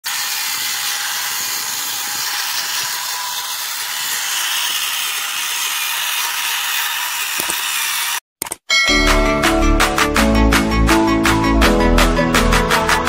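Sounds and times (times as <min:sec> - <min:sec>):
small electric motor whirring: 0:00.0 - 0:08.2.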